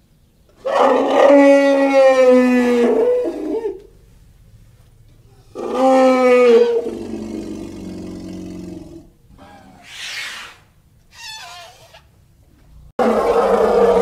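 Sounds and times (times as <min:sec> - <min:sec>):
elephant calling: 0:05.4 - 0:08.1, 0:09.3 - 0:12.1.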